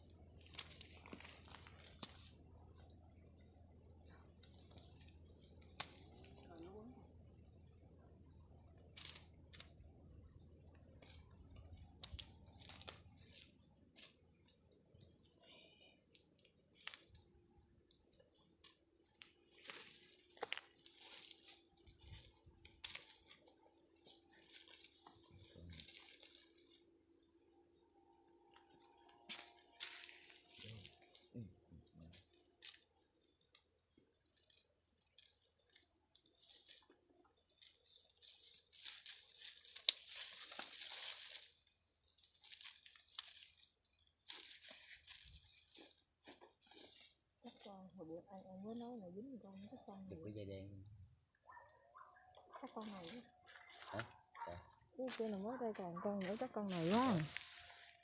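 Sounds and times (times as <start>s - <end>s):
dry leaves rustling and crackling: 0.0s - 2.4s, 8.9s - 9.8s, 10.4s - 14.2s, 16.7s - 17.2s, 18.6s - 26.9s, 28.6s - 31.3s, 32.0s - 48.5s, 52.3s - 58.0s
mesh sack being handled: 56.2s - 58.0s.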